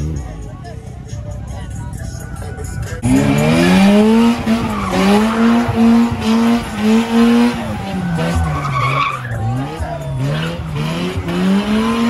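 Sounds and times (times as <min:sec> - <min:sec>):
tyres squealing: 0:02.2 - 0:12.0
car engine revving hard: 0:03.0 - 0:12.0.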